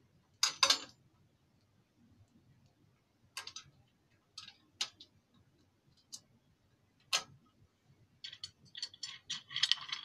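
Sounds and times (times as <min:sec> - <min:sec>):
metal parts clicking: 0:08.2 - 0:10.0.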